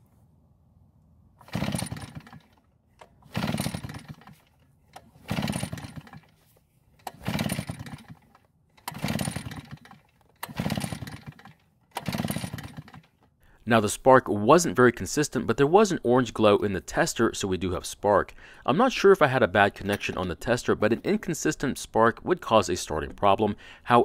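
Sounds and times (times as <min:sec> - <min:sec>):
blower engine pull-start cranking: 0:01.4 - 0:13.3, 0:19.6 - 0:21.1.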